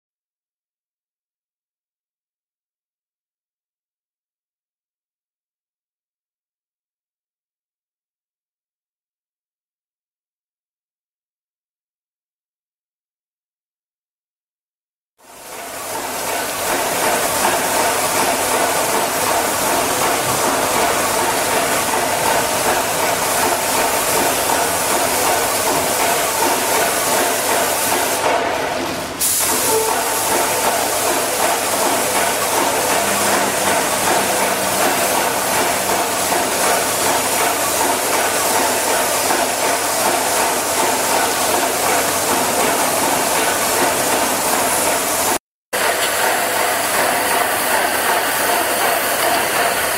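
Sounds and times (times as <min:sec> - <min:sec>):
paint sprayer hissing: 0:16.0 - 0:28.5, 0:29.2 - 0:45.3.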